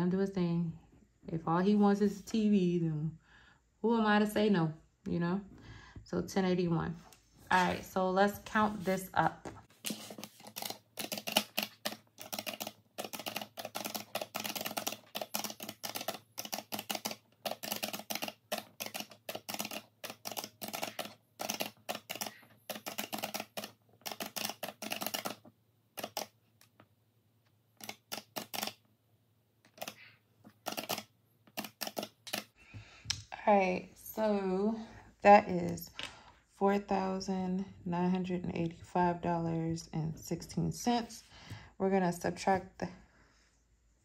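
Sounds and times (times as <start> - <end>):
calculator keys clicking: 9.9 - 26.8, 27.8 - 28.8, 29.7 - 32.6.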